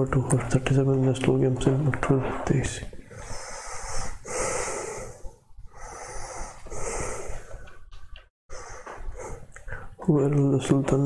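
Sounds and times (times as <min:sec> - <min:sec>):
noisy breathing: 0:03.0 - 0:10.0.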